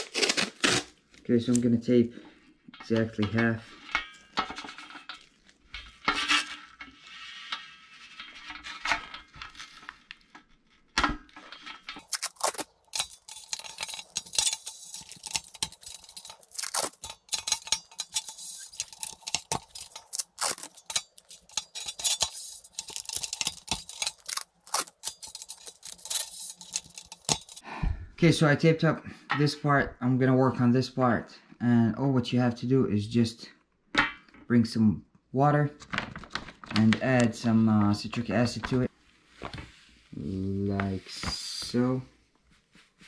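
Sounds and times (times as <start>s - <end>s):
tape peeling off roll: 0.0s - 1.0s
tape crackling and tapping: 8.2s - 27.6s, 35.8s - 37.4s.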